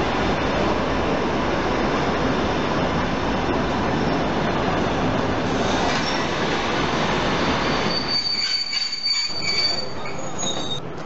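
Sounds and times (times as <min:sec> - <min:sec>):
train wheels rumbling on rails: 0:00.0 - 0:11.0
high wheel squeal: 0:07.6 - 0:10.8.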